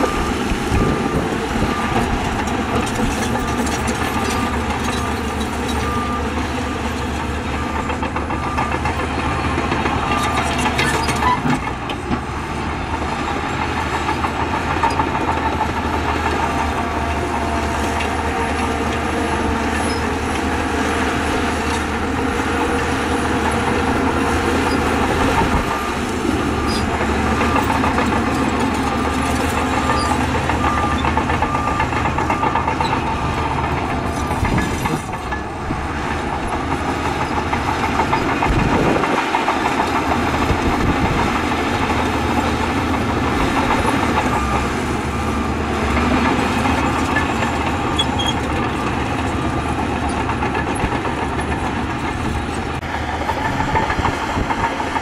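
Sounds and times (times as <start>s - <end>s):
bulldozer diesel engine under load: 0.0s - 55.0s
steel tracks clattering: 0.0s - 55.0s.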